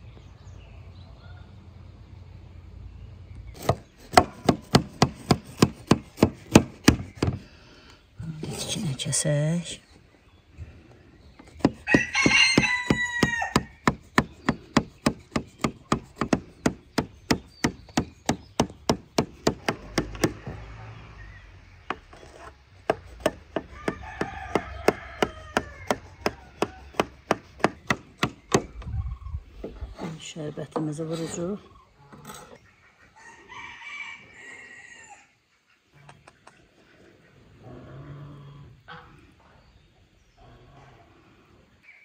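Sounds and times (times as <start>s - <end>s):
rooster crowing: 11.8s - 13.8s, 23.6s - 27.1s, 33.2s - 35.4s.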